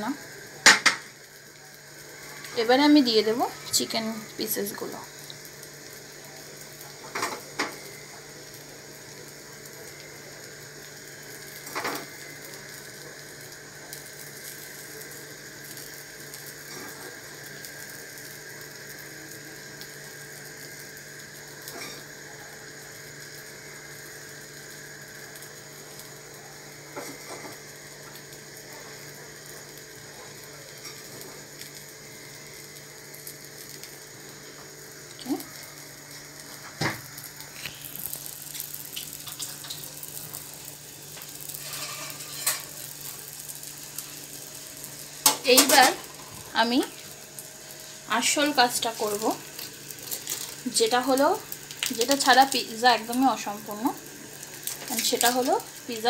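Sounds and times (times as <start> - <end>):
food sizzling in a frying pan: 0.0 - 56.0
steady hum: 0.0 - 56.0.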